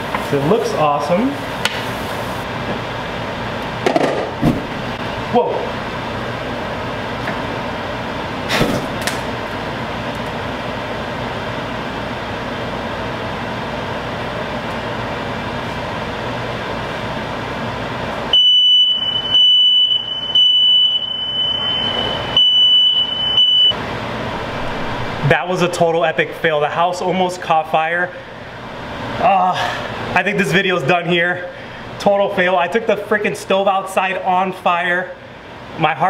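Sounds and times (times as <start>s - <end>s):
smoke alarm beeping: 18.3s - 23.8s
steady rushing noise: 24.2s - 26.5s.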